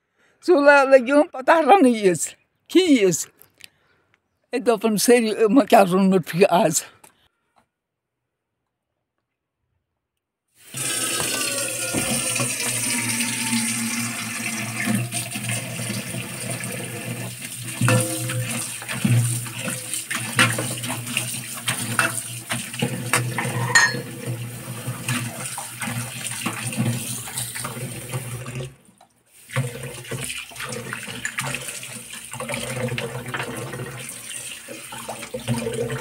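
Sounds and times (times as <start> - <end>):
tap water running into bowl: 10.6 - 36.0
knocks and clinks: 23.4 - 24.1.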